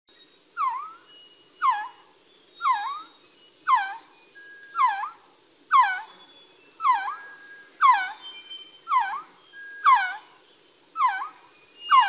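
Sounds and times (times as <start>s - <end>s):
bird whistled call: 0.6s - 10.3s, 11.0s - 12.0s
faint bird whistles: 11.0s - 12.0s.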